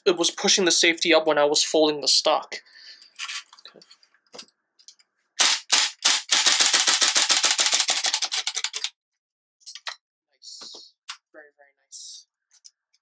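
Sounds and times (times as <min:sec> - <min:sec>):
airsoft rifle shots: 0:05.4 - 0:07.9
airsoft rifle automatic burst: 0:05.4 - 0:08.8.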